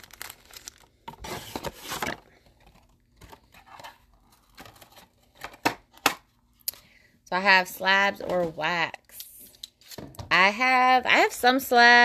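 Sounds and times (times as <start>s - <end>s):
foil card packs crinkling: 0.0s - 5.4s.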